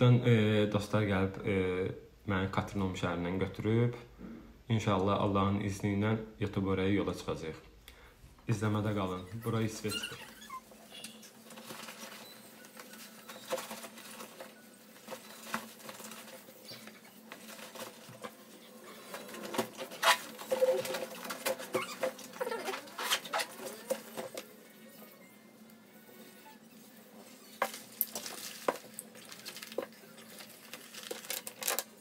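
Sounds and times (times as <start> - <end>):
faint room hum: 0.0 - 32.0
objects handled rustling and clicking: 9.9 - 24.5, 27.5 - 32.0.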